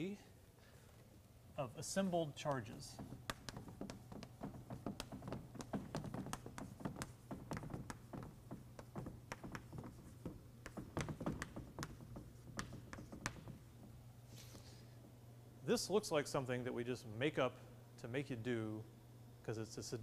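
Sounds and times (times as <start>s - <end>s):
chalk writing on blackboard: 2.9s - 13.6s.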